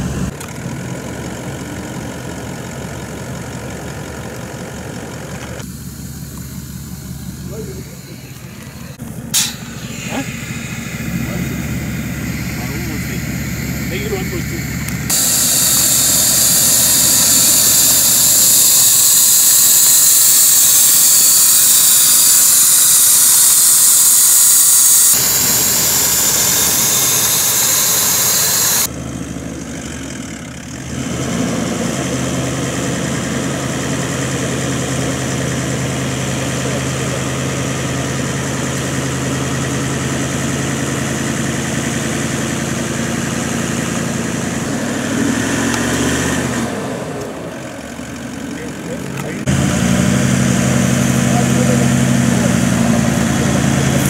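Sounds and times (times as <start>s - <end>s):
vehicle engine running: 0.0s - 54.0s
loud hiss: 5.6s - 28.9s.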